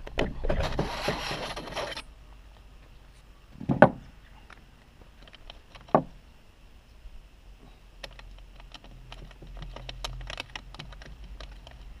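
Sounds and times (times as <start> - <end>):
seatpost scraping out of tube: 0.4 - 2.0.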